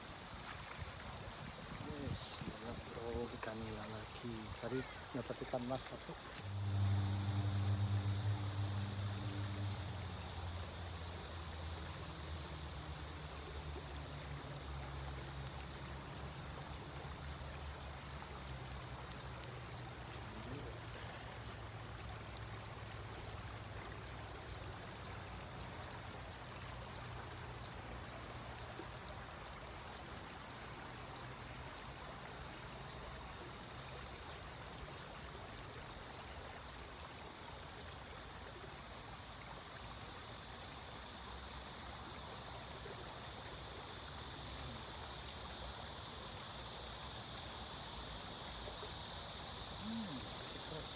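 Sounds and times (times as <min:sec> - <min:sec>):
low hum: 0:06.4 - 0:11.9.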